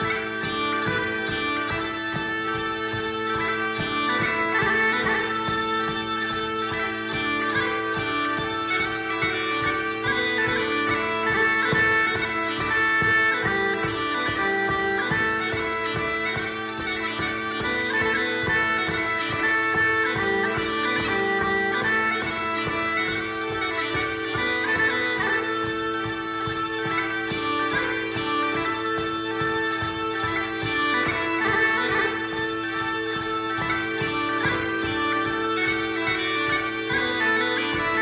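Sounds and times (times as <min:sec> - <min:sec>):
bagpipes playing: 0:00.0 - 0:38.0.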